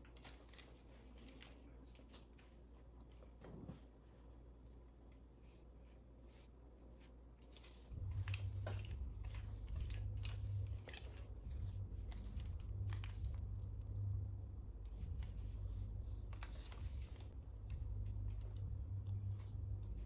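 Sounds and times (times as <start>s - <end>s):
low hum: 7.4s - 20.0s.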